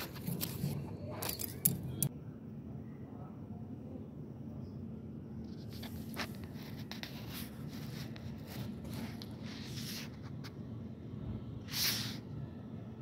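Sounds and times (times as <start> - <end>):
scratchy rustling: 5.4 - 10.6.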